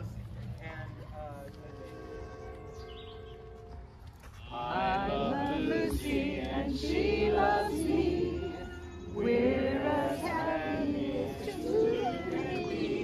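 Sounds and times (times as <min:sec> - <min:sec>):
crowd singing together: 0:04.4 - 0:13.0.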